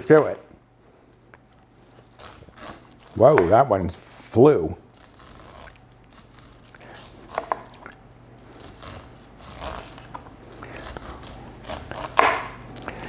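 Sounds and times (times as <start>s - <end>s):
knife scraping corn cob: 1.8s - 13.0s
knife knock: 12.2s - 12.6s.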